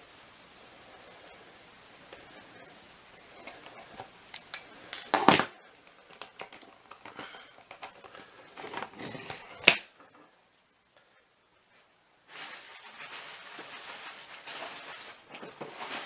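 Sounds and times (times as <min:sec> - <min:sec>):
clicks and rustles of plastic parts: 0:03.4 - 0:10.3.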